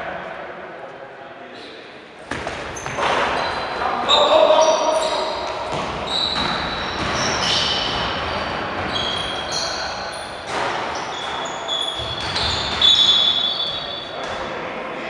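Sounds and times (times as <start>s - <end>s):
sneakers squeaking on gym floor: 2.2s - 14.4s
basketball bouncing: 2.3s - 3.4s, 5.4s - 8.9s, 12.0s - 13.1s.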